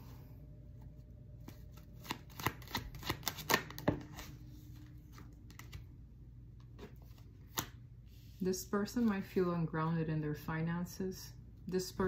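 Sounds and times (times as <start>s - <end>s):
cards being shuffled: 1.4s - 5.9s, 6.6s - 8.2s.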